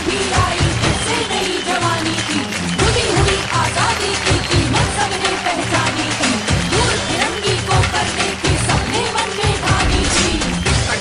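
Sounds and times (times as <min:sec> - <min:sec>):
music with heavy low beats: 0:08.6 - 0:11.0.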